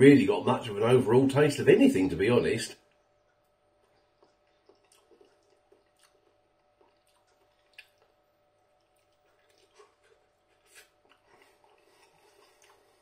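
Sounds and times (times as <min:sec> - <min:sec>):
chewing noodles: 0:02.9 - 0:13.0.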